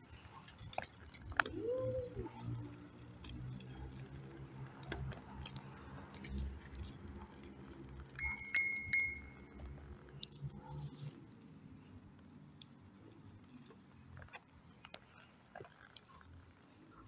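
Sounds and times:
bicycle bell ringing: 0:08.2 - 0:09.6.

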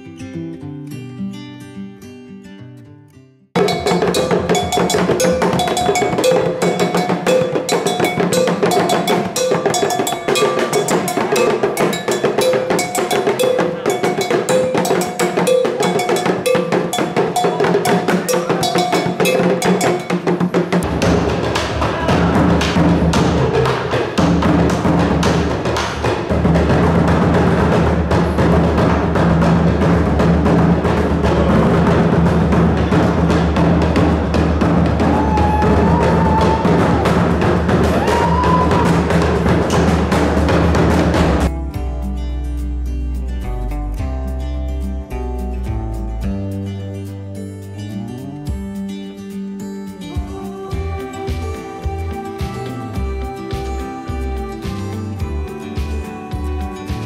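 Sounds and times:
double iron bell struck: 0:03.6 - 0:20.2
tall drum beaten by hand: 0:03.6 - 0:41.5
talking drum beaten with stick: 0:03.6 - 0:41.9, 0:50.1 - 0:57.0.

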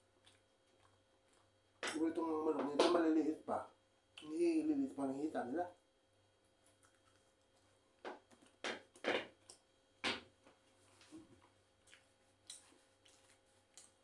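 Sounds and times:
chewing and lip smacks: 0:00.0 - 0:02.0, 0:06.4 - 0:09.7, 0:10.9 - 0:14.0.

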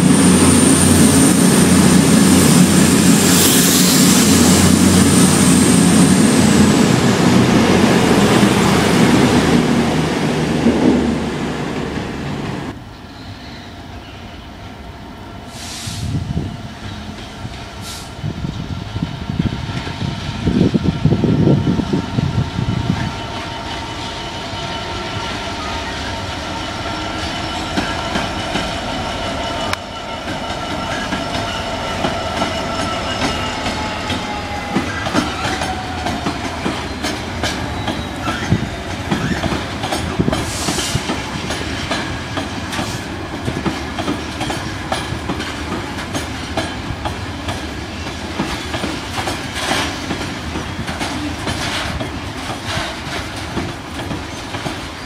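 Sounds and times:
steady high squeal: 0:00.0 - 0:09.6, 0:21.4 - 0:41.1
diesel locomotive engine running: 0:00.0 - 0:12.8
wheels clicking over rail joints: 0:29.7 - 0:55.0.

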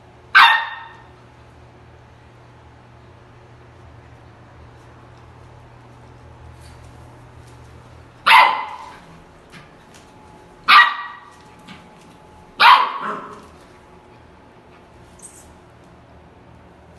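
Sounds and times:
puppy barking: 0:00.3 - 0:01.1, 0:08.2 - 0:09.0, 0:10.7 - 0:11.3, 0:12.6 - 0:13.5.

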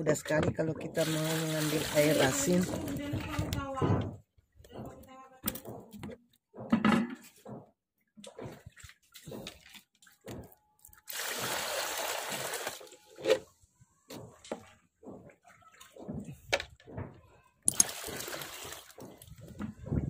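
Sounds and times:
water splashes and knocks: 0:00.0 - 0:20.0
water pouring into basin: 0:01.0 - 0:02.9, 0:11.0 - 0:13.0, 0:17.7 - 0:19.0.

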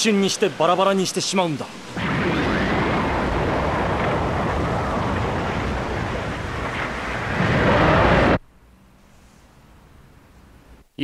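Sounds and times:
rushing roar of wind: 0:02.0 - 0:08.4.

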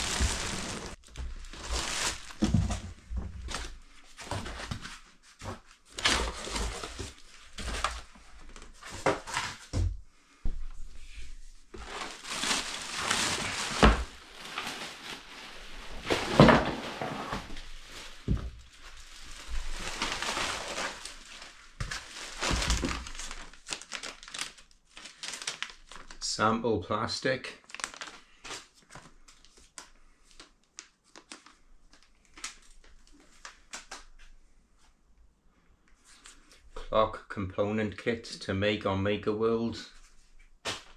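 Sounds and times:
plastic bag crinkling: 0:00.0 - 0:02.6, 0:11.8 - 0:16.4, 0:17.4 - 0:26.2, 0:27.6 - 0:28.3
cardboard and foam rustling: 0:00.0 - 0:09.9, 0:11.3 - 0:26.2.

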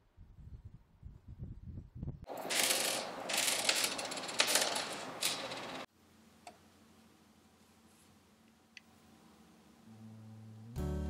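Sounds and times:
knitting machine carriage rattling: 0:02.3 - 0:05.9.

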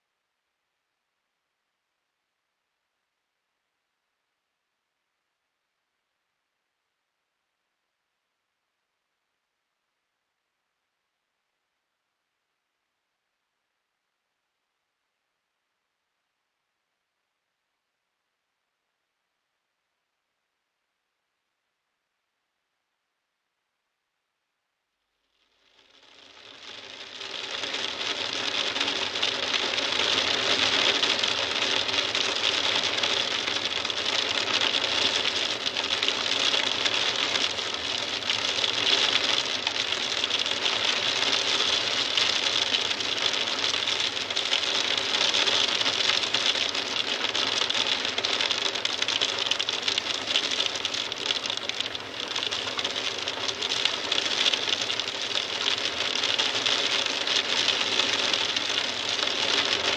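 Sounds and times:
heavy rain on a window: 0:25.6 - 0:59.9.

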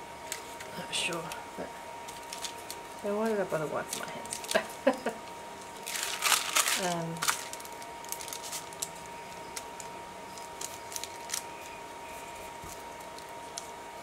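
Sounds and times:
faint steady hum: 0:00.0 - 0:14.0
paper rustling: 0:02.1 - 0:03.0, 0:05.8 - 0:13.7.

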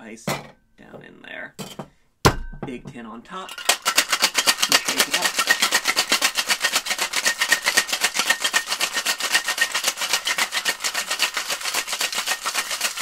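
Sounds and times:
ice rattling in cocktail shaker: 0:03.3 - 0:13.0.

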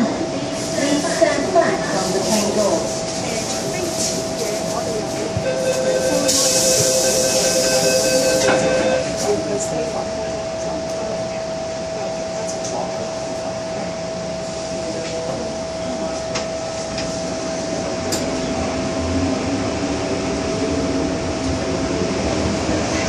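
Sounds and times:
train motors humming with rising tones: 0:01.6 - 0:10.8.

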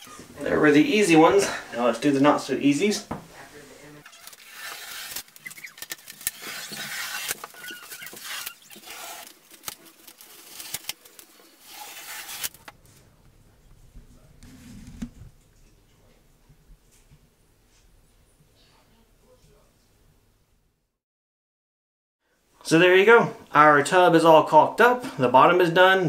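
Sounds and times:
tape being peeled off a wall: 0:04.0 - 0:12.8.

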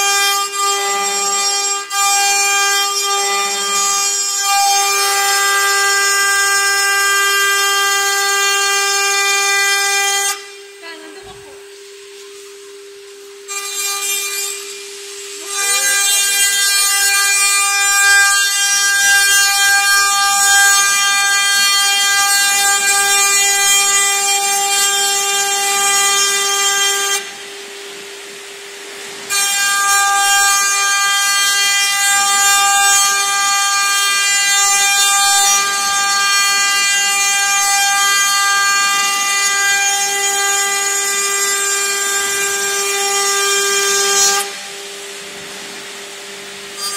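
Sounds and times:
ringing metal-cutting noise: 0:00.0 - 0:10.5, 0:13.4 - 0:27.3.

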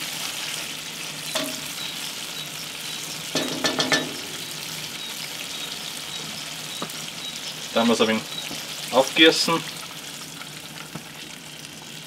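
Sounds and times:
meat and vegetables sizzling in a pot: 0:00.0 - 0:12.0
spoon knocking and scraping pot: 0:01.4 - 0:01.7, 0:03.4 - 0:04.6.

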